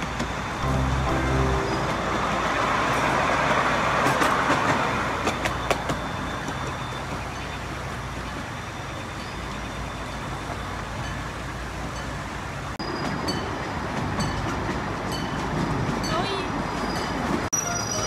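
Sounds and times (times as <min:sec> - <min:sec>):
train wheels rumbling on rails: 0:00.0 - 0:18.0.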